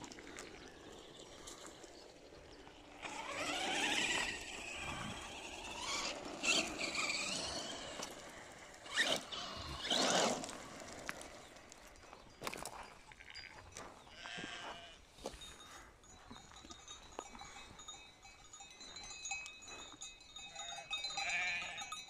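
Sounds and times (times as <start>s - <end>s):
electric motor whining: 0.8s - 11.8s.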